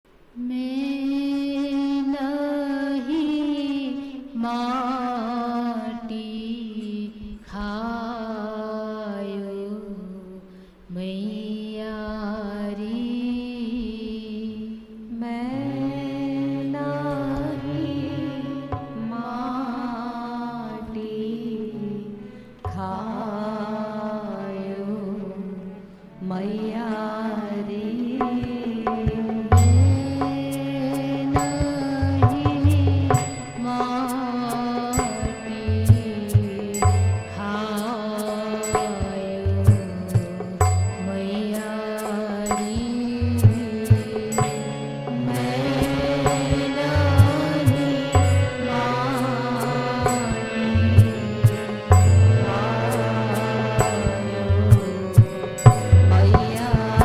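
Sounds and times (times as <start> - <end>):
woman singing devotional song: 0.3 - 57.0
low held drone note: 43.1 - 57.0.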